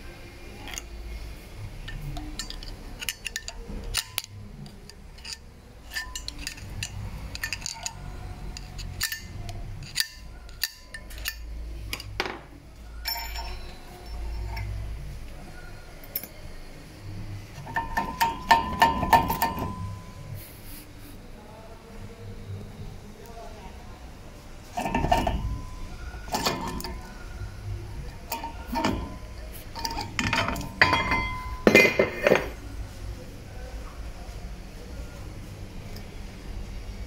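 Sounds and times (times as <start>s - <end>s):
wheel bearing grinding and clicking: 1.8s - 12.2s, 13.0s - 14.8s, 17.6s - 20.1s, 24.7s - 32.6s.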